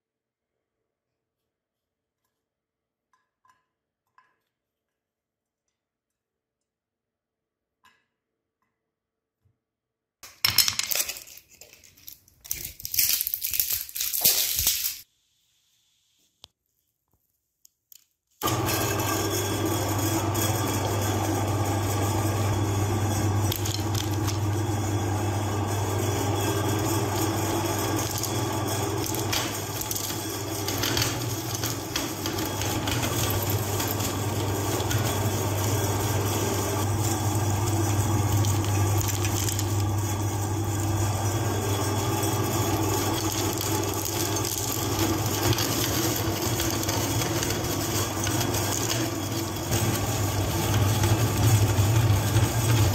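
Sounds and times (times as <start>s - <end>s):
hard candies crunching: 10.9s - 15.0s
meat grinder motor hum: 18.4s - 52.9s.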